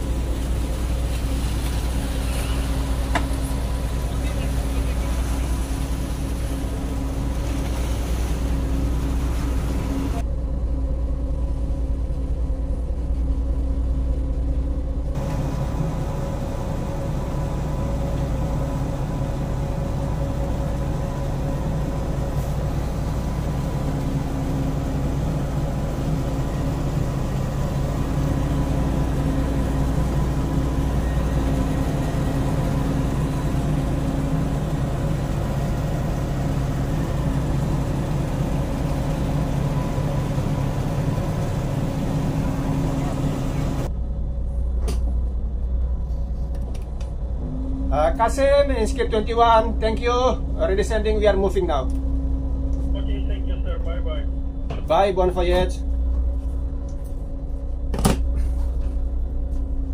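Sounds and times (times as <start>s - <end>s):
boat engine drone: 0.0s - 59.9s
steady tonal hum: 0.0s - 59.9s.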